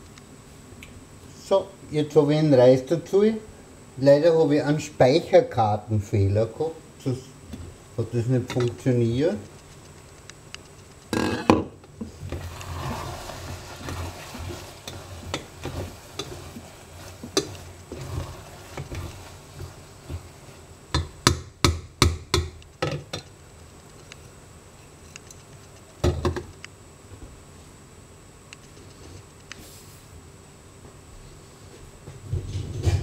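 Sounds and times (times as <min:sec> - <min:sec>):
wooden spoon scraping a pot: 0:11.2 - 0:21.0
spoon knocking on pot: 0:20.9 - 0:23.1.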